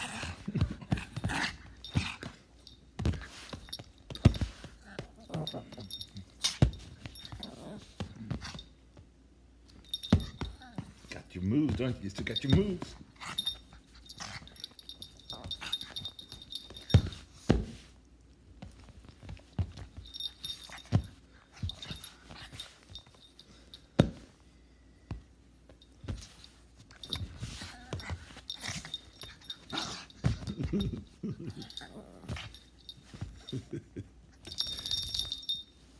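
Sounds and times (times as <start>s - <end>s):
thumps and clicks on a bed: 0.6s - 9.0s, 18.6s - 23.2s, 25.1s - 31.2s
collar tags jingling: 1.5s - 7.8s, 9.8s - 17.4s, 19.7s - 24.0s, 25.8s - 35.8s.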